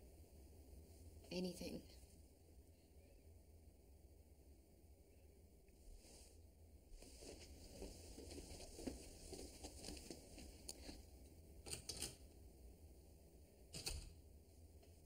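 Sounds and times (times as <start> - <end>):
soft rustling: 5.8 - 11.4.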